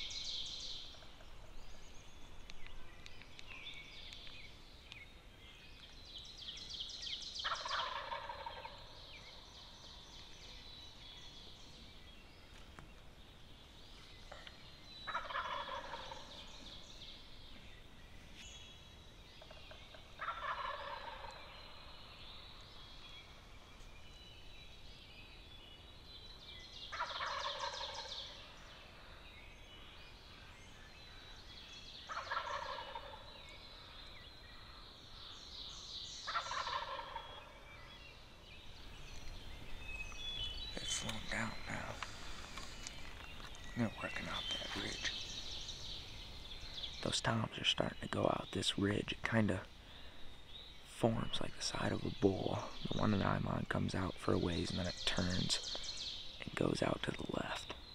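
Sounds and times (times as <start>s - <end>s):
distant turkeys gobbling: 7.4s - 9.1s, 15.1s - 16.6s, 19.4s - 21.5s, 26.9s - 28.4s, 32.1s - 33.4s, 36.2s - 37.7s.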